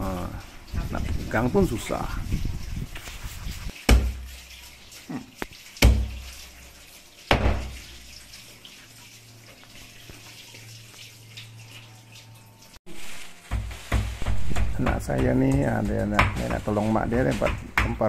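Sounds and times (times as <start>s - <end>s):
knife chopping on board: 13.5s - 16.6s.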